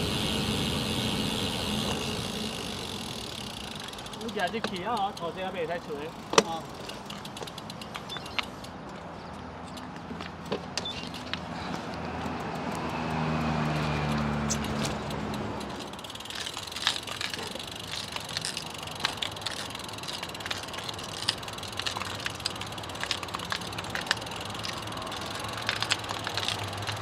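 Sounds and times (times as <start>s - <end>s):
outdoor background hiss: 0.0s - 8.0s
sharp clicks and ticks: 0.0s - 27.0s
vehicle engine passing by: 11.5s - 17.4s.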